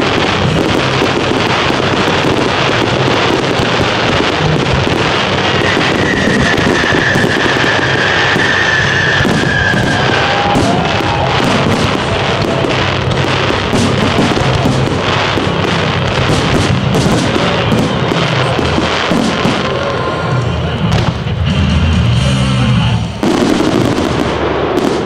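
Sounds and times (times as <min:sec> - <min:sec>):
fireworks bangs and crackling: 0:00.0 - 0:25.0
high steady whistle: 0:05.5 - 0:11.2.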